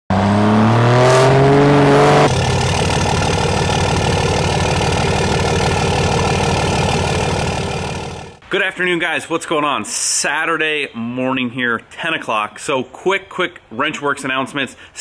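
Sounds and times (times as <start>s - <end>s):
pickup truck engine accelerating: 0.1s - 8.4s
rapidly pulsing engine: 0.1s - 8.4s.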